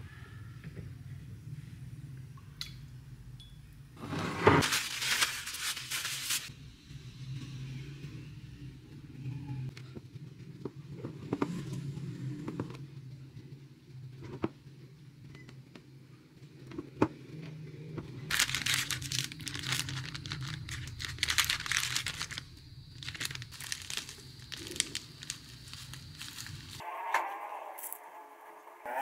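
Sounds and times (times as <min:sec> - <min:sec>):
plastic packet crinkling: 0:04.6 - 0:06.5, 0:18.3 - 0:26.8.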